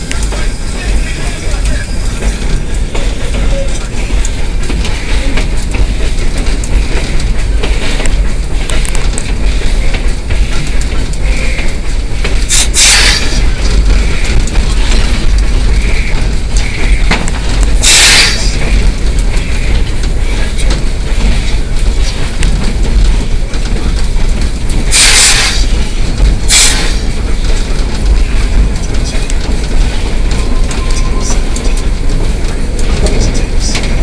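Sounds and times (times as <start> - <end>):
steam locomotive rumble and clatter: 0.0 - 34.0
steam hiss bursts: 12.5 - 13.4, 17.8 - 18.6, 24.9 - 25.7.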